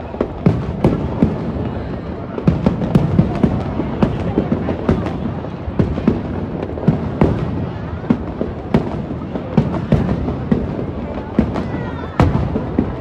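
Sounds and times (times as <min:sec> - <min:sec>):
small firework bursts: 0:00.0 - 0:13.0.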